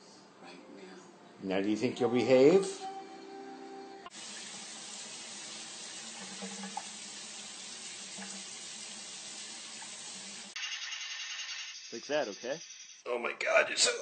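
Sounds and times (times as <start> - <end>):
tap water running into sink: 4.1 - 11.7.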